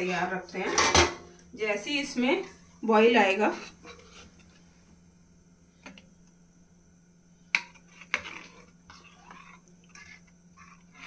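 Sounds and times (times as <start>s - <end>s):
faint steady hum: 0.0s - 11.0s
ladle scraping steel pan: 7.6s - 11.0s.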